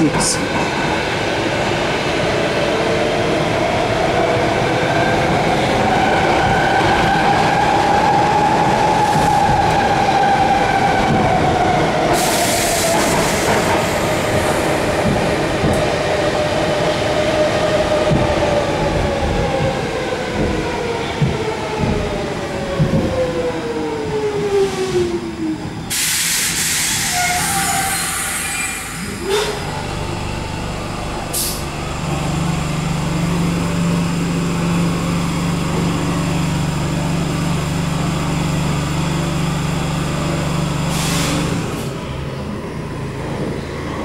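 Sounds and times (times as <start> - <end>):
train rumble and wheel clatter: 0.0 - 44.0
air hiss: 25.9 - 27.2.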